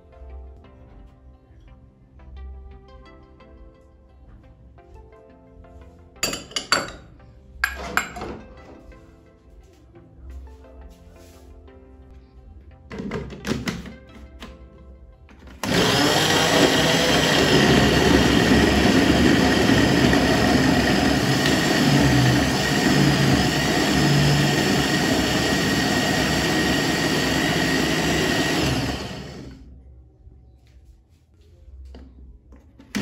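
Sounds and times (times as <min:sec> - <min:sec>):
blender motor running: 0:15.6 - 0:29.6.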